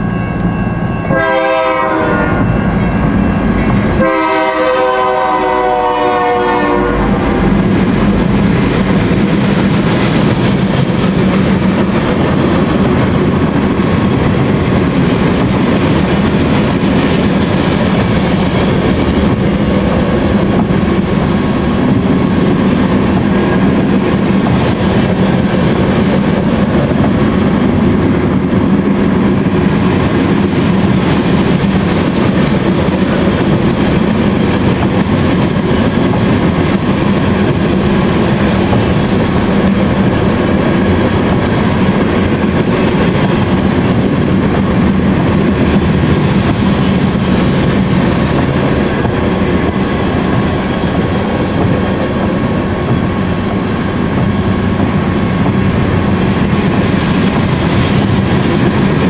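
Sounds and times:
train wheels rumbling and clattering: 0:00.0 - 0:59.0
locomotive air horn: 0:01.0 - 0:02.8, 0:03.9 - 0:07.6.

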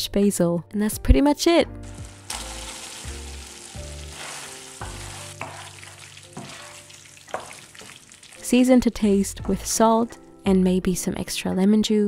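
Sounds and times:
sauce sizzling in a frying pan: 0:01.8 - 0:09.2
wooden spoon knocking and scraping pan: 0:01.9 - 0:08.4, 0:09.2 - 0:10.0.

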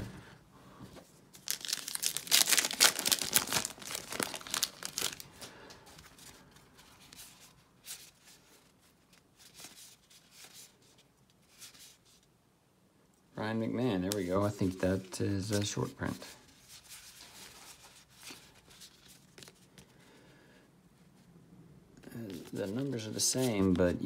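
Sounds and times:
cards rustling and flicking: 0:01.3 - 0:08.2
plastic wrapper tearing and crinkling: 0:01.4 - 0:05.5.

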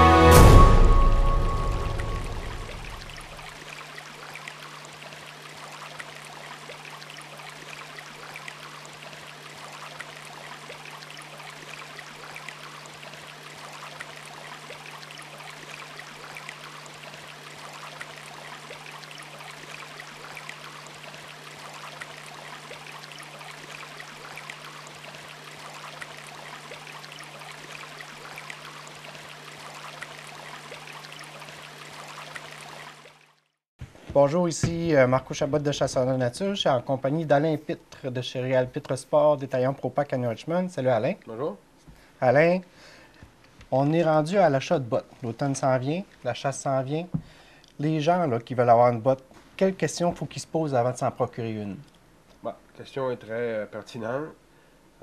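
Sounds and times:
stream running over stones: 0:00.4 - 0:41.1.

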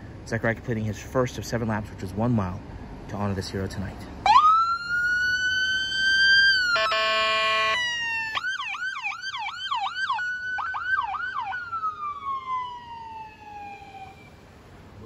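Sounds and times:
police siren wailing and yelping: 0:04.2 - 0:14.4
air horn blast: 0:06.7 - 0:07.8.

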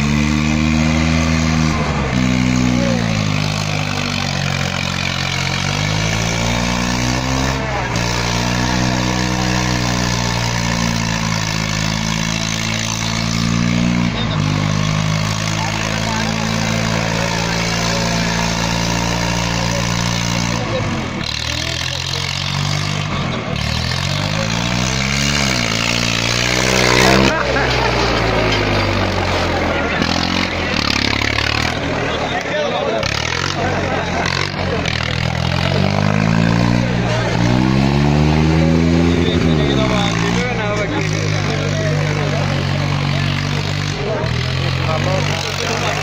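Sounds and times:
tractor diesel engine under load: 0:00.0 - 0:46.0.

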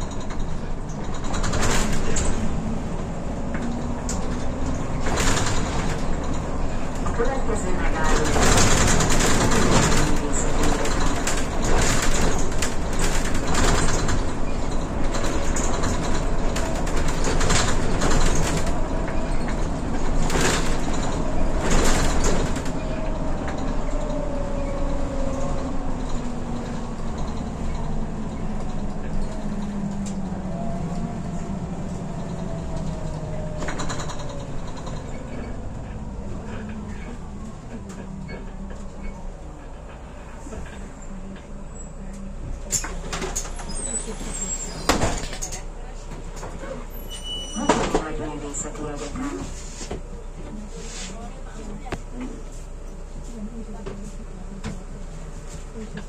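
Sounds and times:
rattles and knocks: 0:00.0 - 0:02.5, 0:03.4 - 0:24.3
bus engine and road noise: 0:00.0 - 0:56.0.

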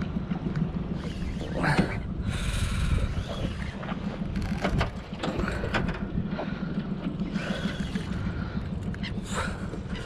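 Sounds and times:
steady low rumble: 0:00.0 - 0:10.0
fishing reel clicking and whirring: 0:00.9 - 0:04.9.

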